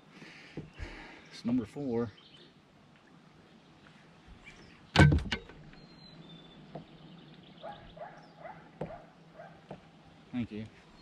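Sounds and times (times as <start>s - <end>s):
sharp knocks: 5.0s - 5.6s.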